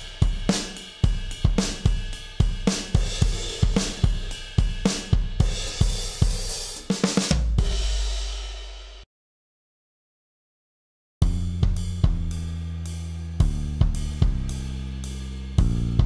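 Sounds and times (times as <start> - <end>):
hi-hats and cymbals: 0.0 - 9.0, 11.2 - 16.0
booming electronic kick drum: 11.2 - 12.5, 13.4 - 14.6.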